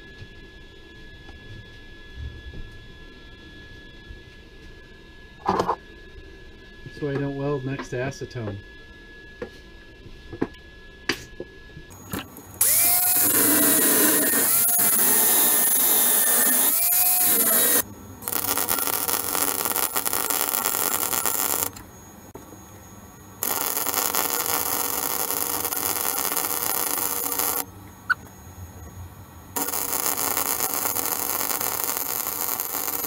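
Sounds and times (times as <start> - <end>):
arc welding crackling hiss: 11.9 - 22.0, 23.4 - 27.8, 29.6 - 33.0.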